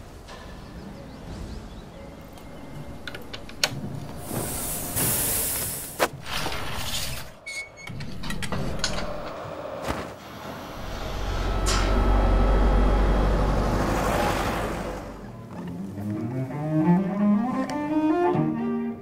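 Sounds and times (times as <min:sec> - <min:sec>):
loud hiss of air: 0:04.2 - 0:06.1.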